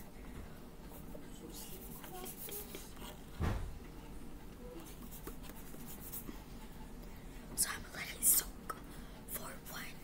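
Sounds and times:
dull thump: 3.4s - 3.7s.

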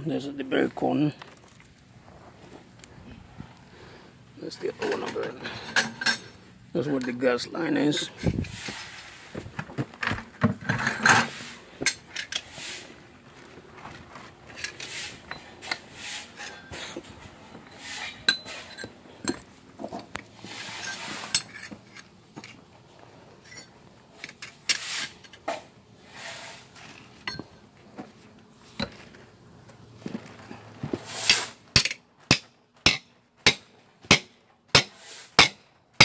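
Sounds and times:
rustling and scraping: 0.4s - 34.1s
metal tools clinking and knocking: 4.7s - 7.2s, 16.4s - 20.0s, 20.8s - 22.6s, 23.4s - 25.5s, 27.2s - 27.6s.

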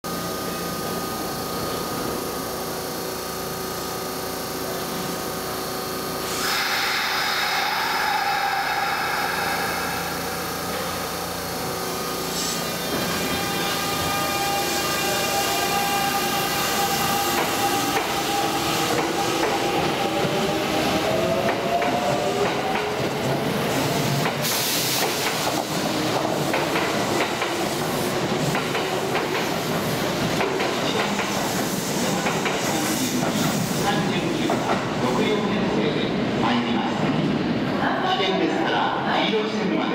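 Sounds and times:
electric train inverter whine: 0.1s - 30.6s
train equipment humming: 0.1s - 32.6s
loud hiss: 6.2s - 21.0s, 23.5s - 30.2s.

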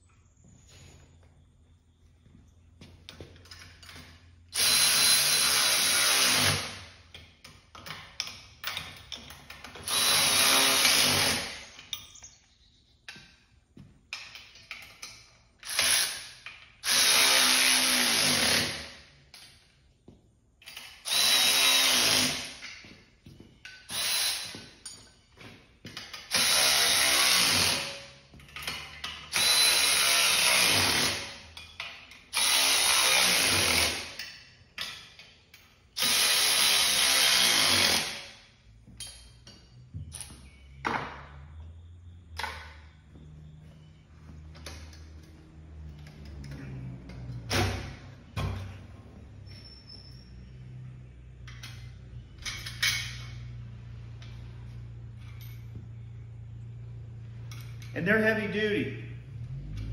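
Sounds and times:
cordless drill whining: 4.6s - 6.7s, 9.8s - 11.6s, 21.0s - 22.6s, 23.9s - 24.6s, 29.3s - 31.3s, 32.4s - 34.1s
hardware clicking and rattling: 14.1s - 16.8s.

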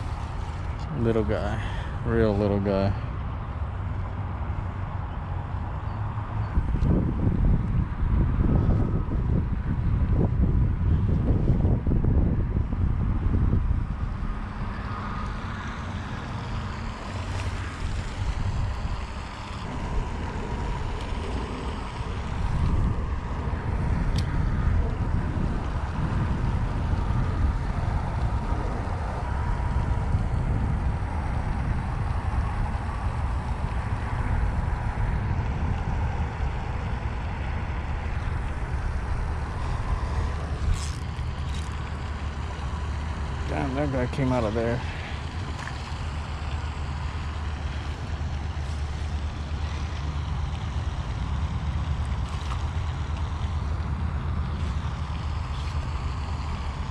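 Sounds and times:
wind buffeting microphone: 0.0s - 56.9s
fishing reel clicks: 40.6s - 41.9s.

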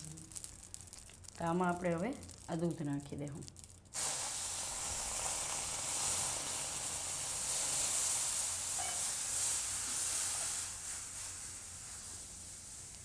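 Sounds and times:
milk sizzling in hot pan: 0.0s - 2.8s, 3.6s - 13.0s.

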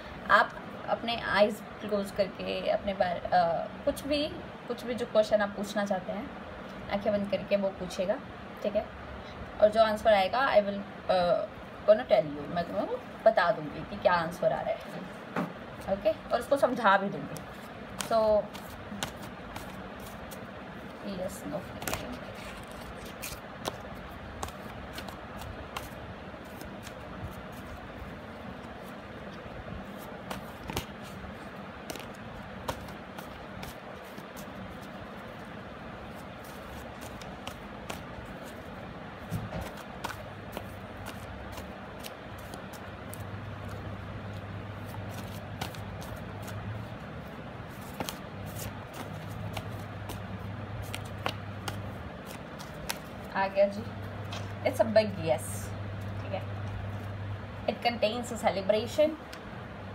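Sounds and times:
steady background noise: 0.0s - 59.9s
steady low hum: 0.0s - 59.9s
cards shuffling: 16.7s - 53.3s.

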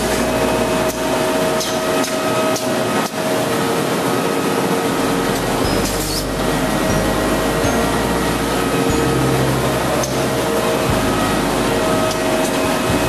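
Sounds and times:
machine hum and whir: 0.0s - 13.0s
sharp machine clacks: 0.8s - 3.3s, 5.3s - 7.0s.

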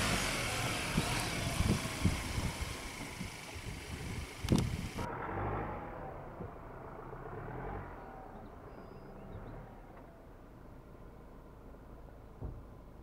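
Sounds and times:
diesel truck engine: 0.0s - 12.0s
short thump: 12.4s - 12.7s.

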